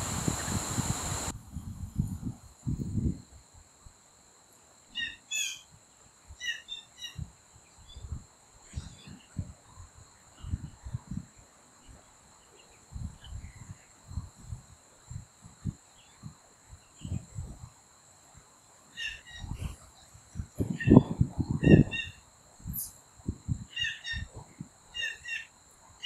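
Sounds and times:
high insect trill: 0:00.0 - 0:26.0
small birds chirping: 0:04.9 - 0:05.7, 0:06.4 - 0:08.1, 0:18.9 - 0:20.0, 0:23.7 - 0:25.5.

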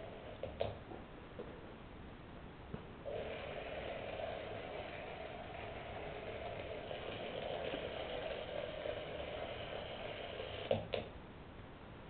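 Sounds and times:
robot drive motors whirring: 0:03.1 - 0:10.8.

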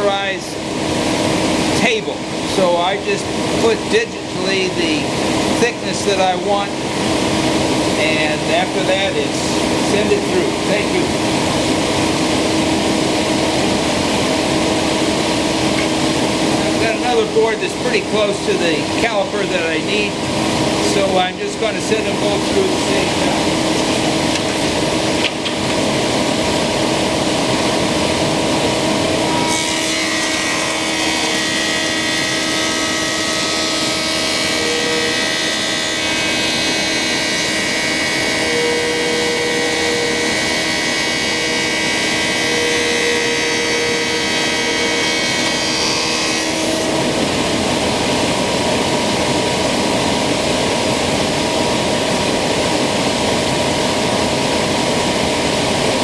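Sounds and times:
planer cutting boards: 0:00.0 - 0:11.5, 0:15.1 - 0:25.9, 0:27.6 - 0:47.5
thickness planer running: 0:00.0 - 0:56.0.

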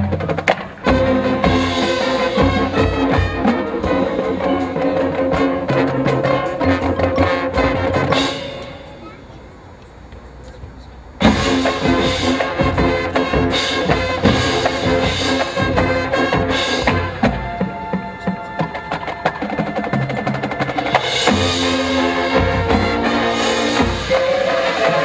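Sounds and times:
marching band playing: 0:00.0 - 0:09.7, 0:11.1 - 0:25.0
heavy drum hits: 0:11.2 - 0:17.4.

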